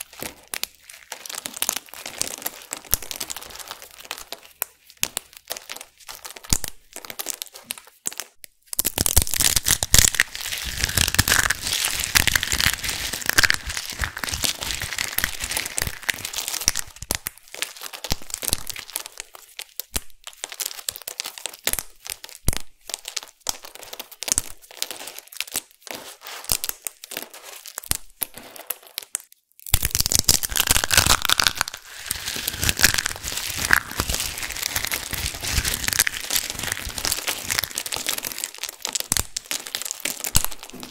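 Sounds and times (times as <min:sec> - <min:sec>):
dried soap crunching in hands: 0:00.0 - 0:40.9.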